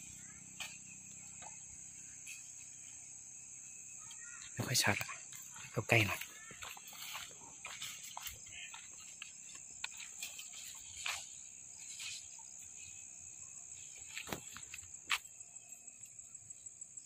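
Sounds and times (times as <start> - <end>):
insects chirring: 0.0 - 17.0.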